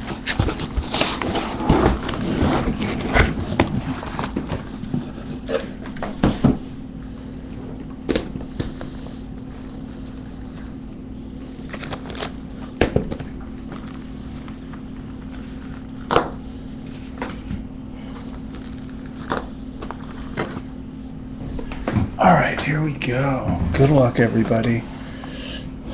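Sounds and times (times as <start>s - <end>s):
low hum: 0.0s - 25.9s
cardboard boxes knocking and scraping: 0.1s - 5.1s.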